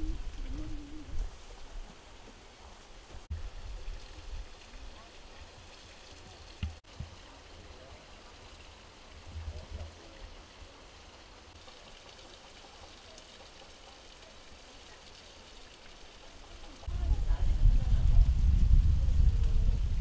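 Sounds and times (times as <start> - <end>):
wind on microphone: 0.0 - 1.8, 16.8 - 20.0
steady rushing hiss: 0.0 - 20.0.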